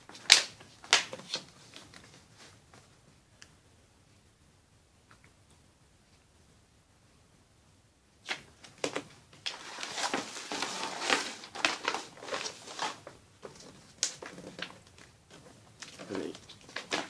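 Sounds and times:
paper crinkling and rustling: 8.3s - 17.0s.

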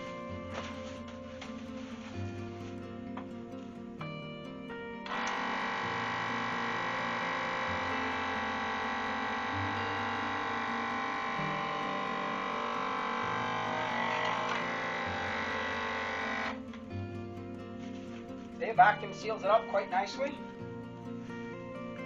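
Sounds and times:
plastic bag crackling: 0.0s - 3.7s
vacuum sealer motor whine: 5.0s - 16.7s.

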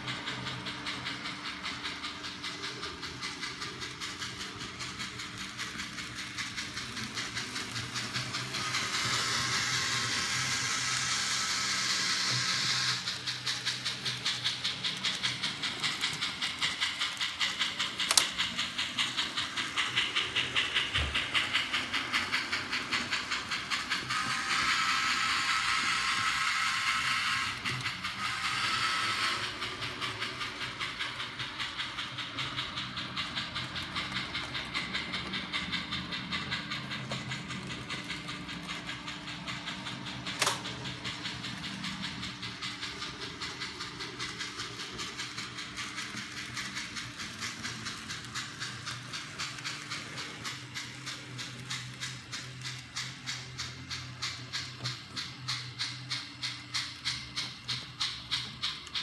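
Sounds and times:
steam exhaust chuffs from small speaker: 0.0s - 59.0s
sharp click: 40.3s - 41.2s.

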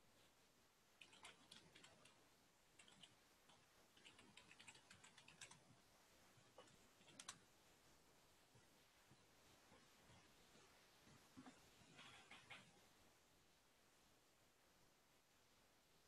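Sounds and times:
computer keyboard typing: 1.0s - 2.2s, 2.8s - 5.6s, 6.6s - 7.4s.

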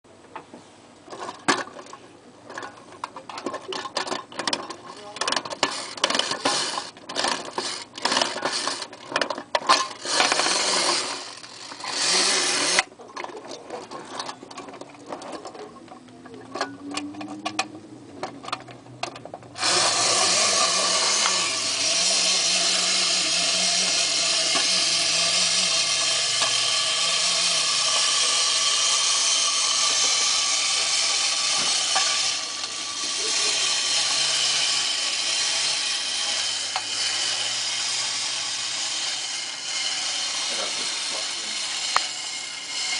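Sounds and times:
toy robot mechanical whirring: 3.4s - 12.9s, 19.6s - 42.9s.

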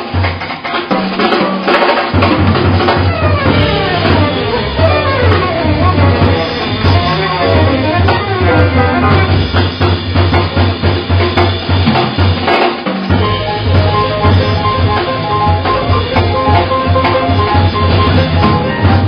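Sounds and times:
drum kit cymbals snare and bass drum: 0.0s - 19.0s
upright bass notes: 2.5s - 9.8s, 13.1s - 19.0s
held higher note: 3.0s - 9.6s, 13.2s - 19.0s.

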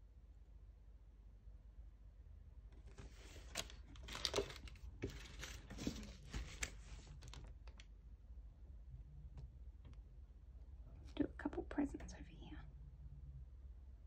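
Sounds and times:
plastic bags crinkling: 2.9s - 7.9s.

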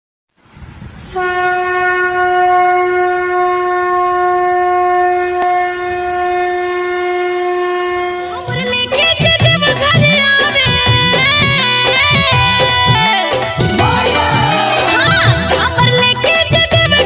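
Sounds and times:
conch shell blown: 1.1s - 8.7s.

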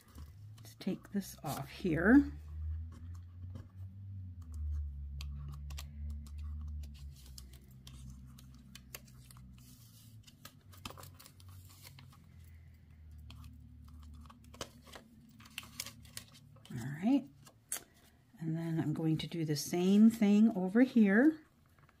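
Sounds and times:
low steady hum: 0.0s - 22.0s
paper peeling and rustling: 4.5s - 12.6s, 13.2s - 18.0s.

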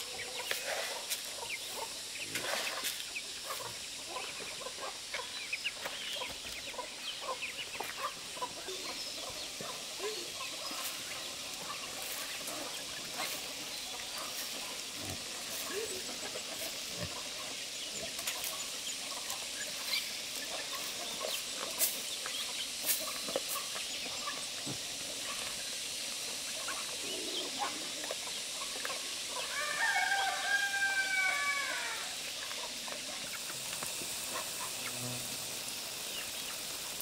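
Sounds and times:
steady faint hiss: 0.0s - 37.0s
rooster crowing: 29.4s - 32.2s.

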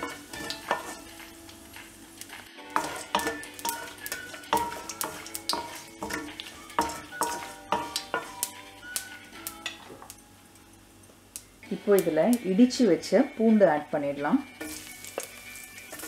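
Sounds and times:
spices sizzling in oil: 0.0s - 16.0s
wooden spoon knocking on pan: 2.7s - 8.5s.

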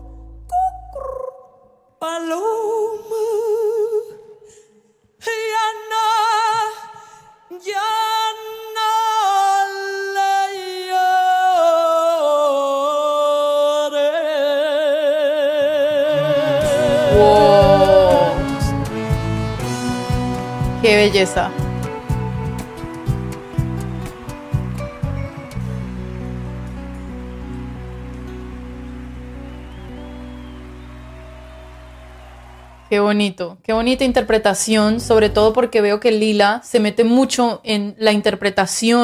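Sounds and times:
woman singing with vibrato: 12.0s - 18.8s
low instruments: 16.0s - 19.0s, 33.7s - 35.7s.

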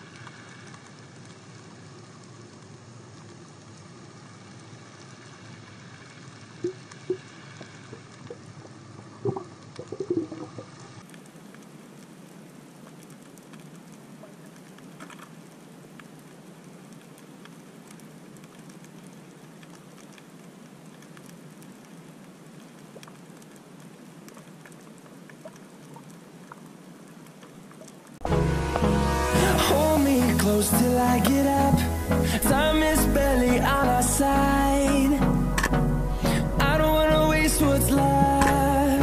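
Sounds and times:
bubbly pops: 7.9s - 10.8s
faint clicks: 12.8s - 28.2s
underwater hiss: 28.3s - 33.4s.

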